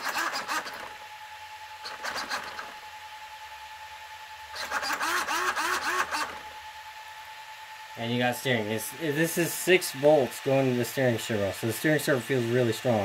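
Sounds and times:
servo whirring: 0:01.8 - 0:02.8, 0:04.5 - 0:06.4.

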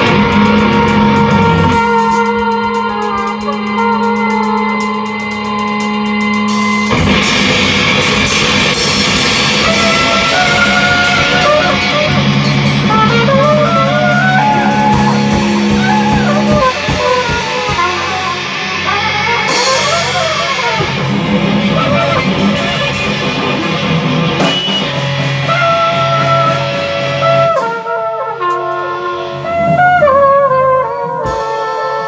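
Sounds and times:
drum kit playing: 0:00.0 - 0:32.0
electric guitar: 0:00.0 - 0:32.0.

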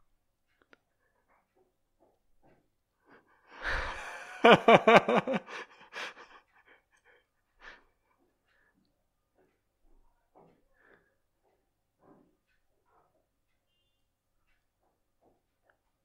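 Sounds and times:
person exhaling: 0:03.5 - 0:04.3
burst of laughter: 0:03.6 - 0:06.4.

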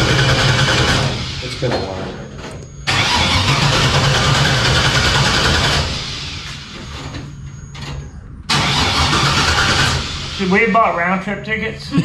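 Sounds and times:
starter cranking car engine: 0:00.0 - 0:01.7, 0:02.9 - 0:06.4, 0:08.5 - 0:10.7.

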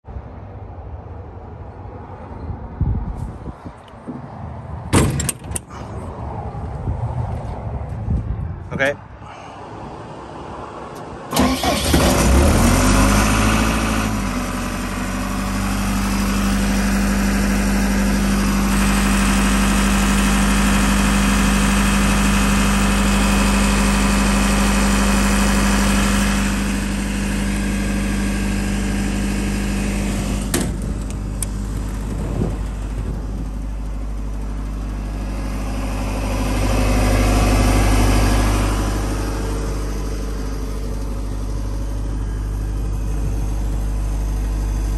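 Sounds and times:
diesel engine starting and idling: 0:09.2 - 0:44.9.

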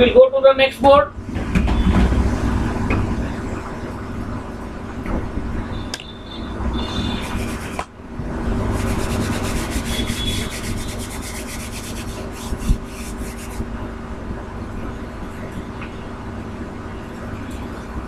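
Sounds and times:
chalk duster scrubbing chalkboard: 0:06.9 - 0:07.9, 0:08.7 - 0:13.6.

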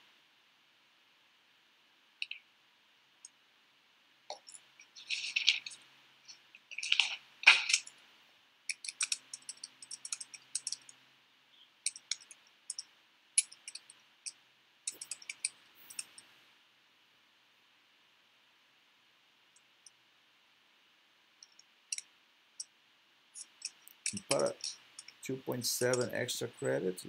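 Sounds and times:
computer keyboard typing: 0:08.7 - 0:10.9, 0:11.9 - 0:12.8, 0:13.4 - 0:13.9, 0:14.9 - 0:16.2, 0:23.4 - 0:25.1.

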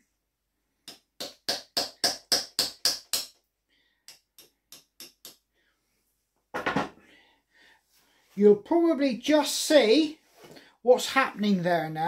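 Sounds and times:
hammer tapping on knife blade: 0:00.9 - 0:03.3, 0:04.1 - 0:05.4.

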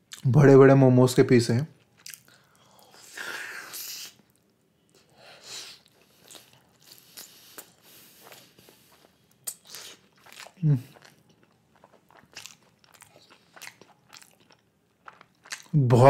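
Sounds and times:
person chewing wetly: 0:01.8 - 0:03.0, 0:05.8 - 0:15.8.

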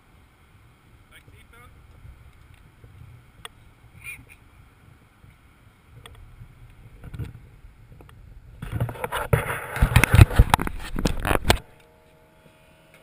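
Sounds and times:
wind on microphone: 0:00.5 - 0:11.7
camera handling rustling and knocking: 0:08.0 - 0:11.7.

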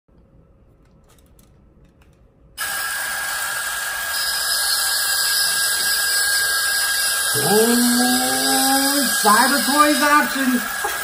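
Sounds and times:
toy motor whirring: 0:02.6 - 0:11.0.

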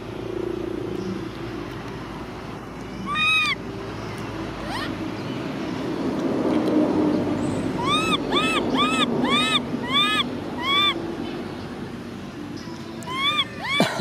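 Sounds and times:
baby macaque crying: 0:03.0 - 0:03.6, 0:04.6 - 0:05.0, 0:07.8 - 0:11.0, 0:13.0 - 0:14.0.

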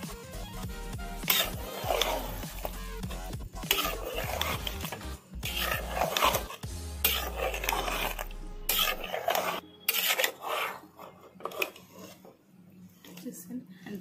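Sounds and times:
spatula scraping metal pot: 0:00.5 - 0:12.4.

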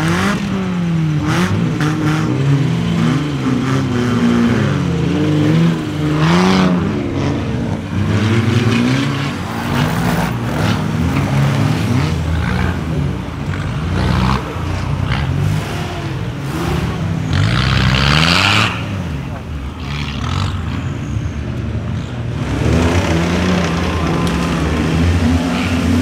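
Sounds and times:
car engine revving: 0:00.0 - 0:26.0.

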